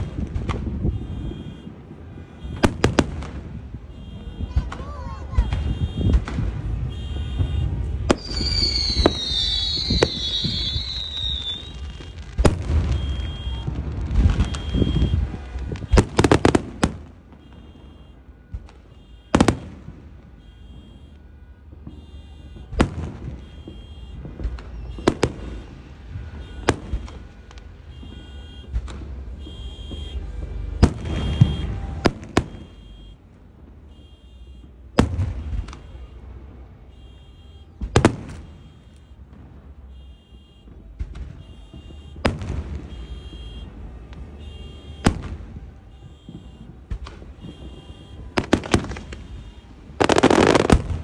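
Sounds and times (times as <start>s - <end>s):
fireworks bangs: 0.0s - 51.0s
car alarm beeping: 0.9s - 1.8s, 12.8s - 13.7s, 14.4s - 15.2s, 17.4s - 19.5s, 20.4s - 22.7s, 27.9s - 28.7s, 29.4s - 33.2s, 33.9s - 36.2s, 36.9s - 39.2s, 39.9s - 42.2s, 42.8s - 43.7s.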